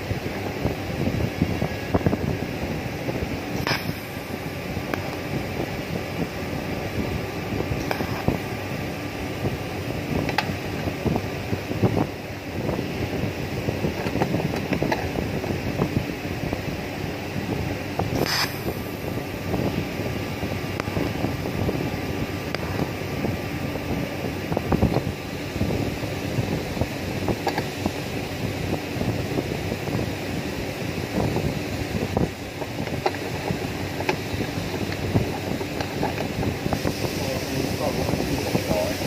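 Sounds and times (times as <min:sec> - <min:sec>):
welding torch hissing: 0:02.4 - 0:11.5, 0:17.2 - 0:24.5, 0:29.5 - 0:39.0
sharp hiss of tack weld: 0:03.6 - 0:04.4, 0:18.1 - 0:19.0, 0:36.8 - 0:39.0.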